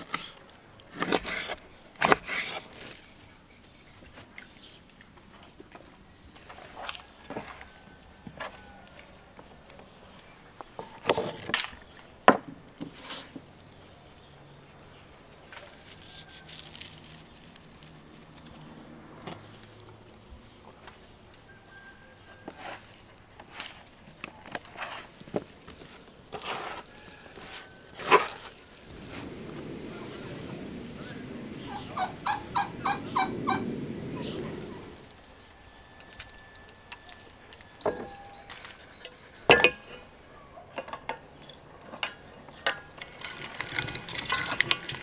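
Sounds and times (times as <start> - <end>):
outdoor hiss: 28.6 - 38.4
poultry calling: 31.0 - 35.0.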